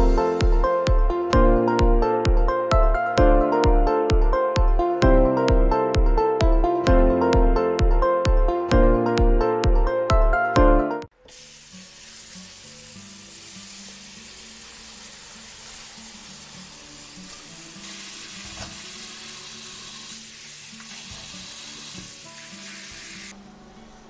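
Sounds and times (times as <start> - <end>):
soft background music: 0.0 - 24.0
tap water running into sink: 11.3 - 23.3.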